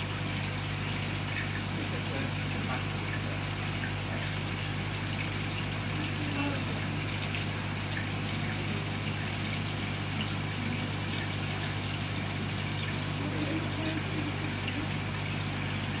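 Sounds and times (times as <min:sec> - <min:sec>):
aquarium pump hum: 0:00.0 - 0:16.0.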